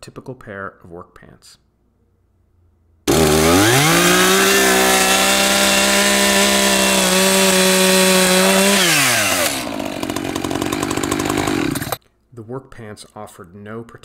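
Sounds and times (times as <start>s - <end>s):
chainsaw revving and cutting: 3.1s - 12.0s.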